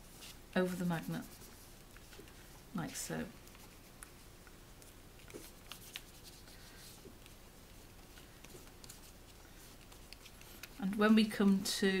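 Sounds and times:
paper rustling: 4.8 - 11.7
paper clicks: 8.1 - 11.6.

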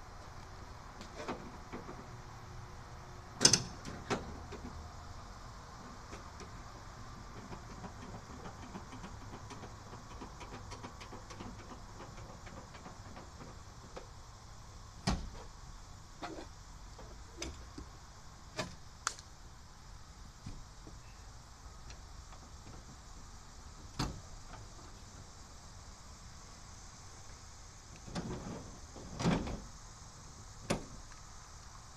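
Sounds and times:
tailgate knocks and clicks: 3.4 - 4.7, 7.3 - 14.1, 15.0 - 15.5, 28.0 - 29.7, 30.6 - 31.0.

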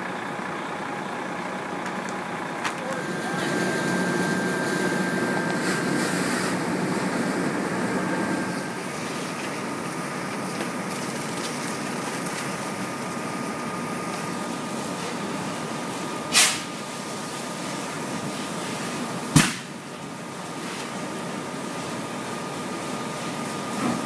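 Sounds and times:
mechanical drone with whine: 2.1 - 10.9.

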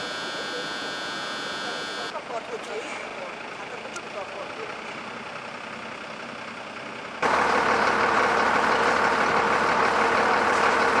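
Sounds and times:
low street background: 0.0 - 11.0
truck engine running: 0.0 - 11.0.

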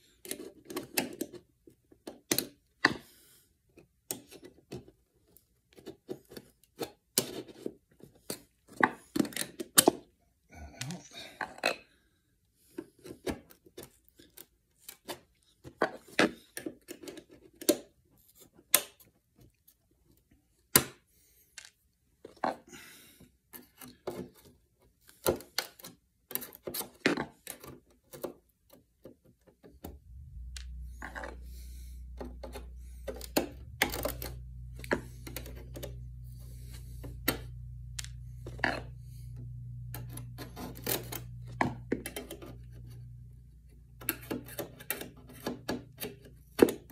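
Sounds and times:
low hum: 29.9 - 46.9.

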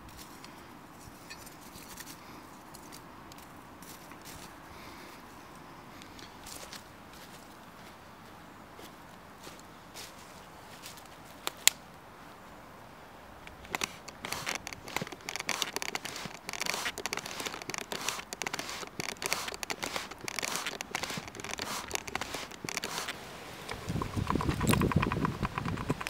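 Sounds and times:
charcoal crackling and popping: 13.5 - 26.0
sharp click: 13.5 - 26.0.

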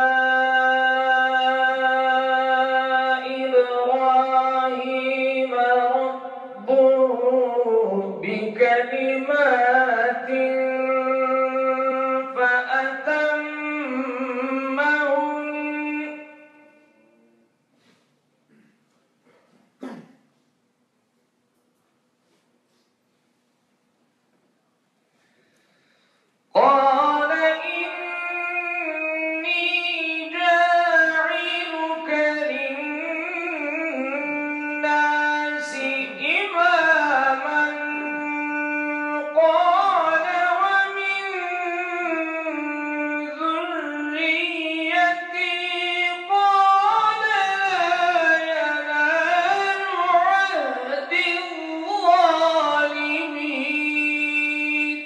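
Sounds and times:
man chanting melodically: 0.0 - 17.6, 26.6 - 55.0.

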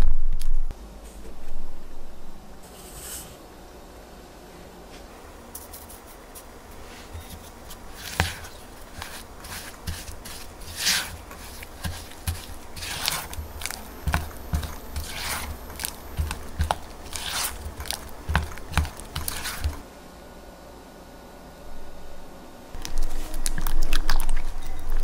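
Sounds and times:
spatula squishing and scraping: 6.7 - 19.8, 22.8 - 25.0.

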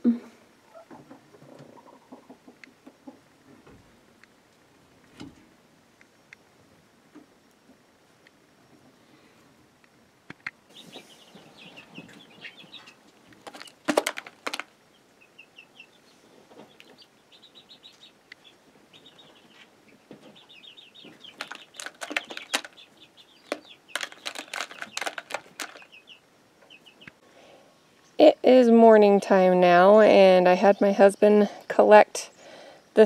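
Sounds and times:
rapid high chirping: 20.4 - 27.1.

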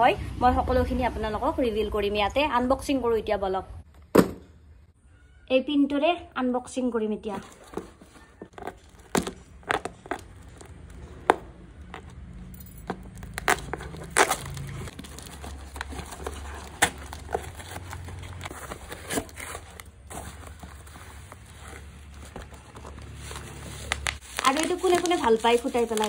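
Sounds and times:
plastic wrapping crinkling: 7.4 - 26.0
tape and cardboard ripping: 13.1 - 26.0.

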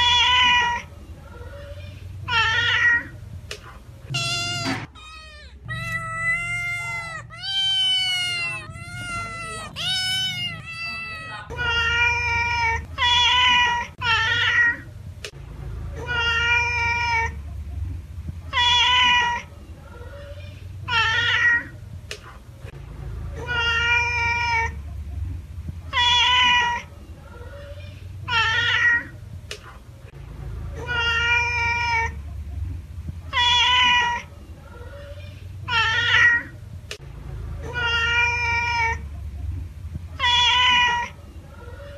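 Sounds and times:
cat meowing: 0.0 - 0.9, 1.5 - 3.2, 4.1 - 14.9, 18.5 - 19.4, 20.9 - 21.7, 25.9 - 26.8, 27.6 - 29.1, 33.3 - 34.3, 35.0 - 36.5, 37.6 - 39.0, 40.2 - 41.2.

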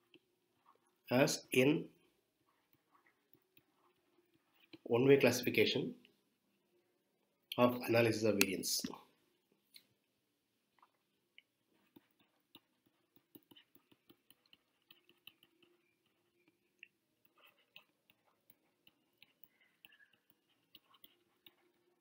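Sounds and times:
stylus tapping on tablet screen: 11.7 - 21.7.

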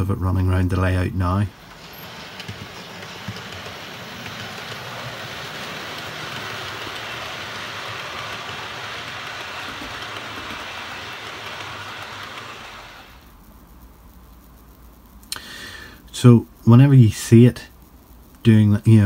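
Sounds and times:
model train whirring rattle: 0.0 - 13.4.

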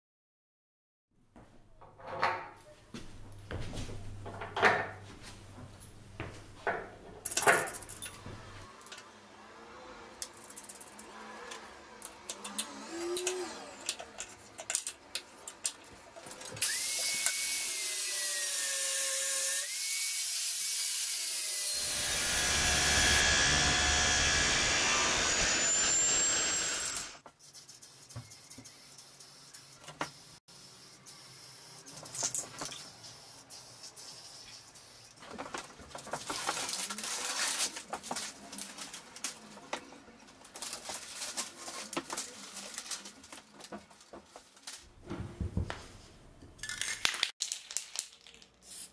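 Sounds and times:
power grinder cutting steel: 8.7 - 14.2, 16.6 - 27.2
paper rustling and crinkling: 35.2 - 44.9.

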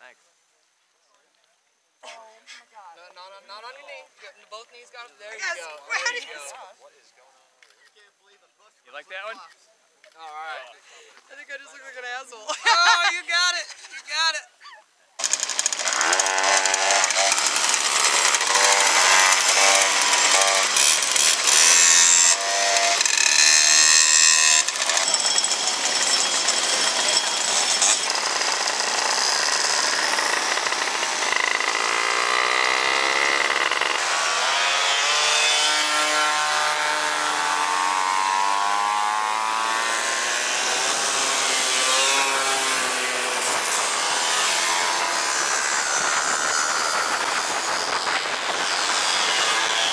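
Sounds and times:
moped engines revving: 15.2 - 49.9.

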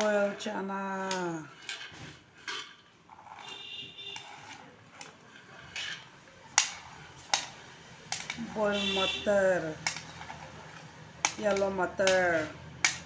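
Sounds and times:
spoon scraping a plate: 1.5 - 7.3.

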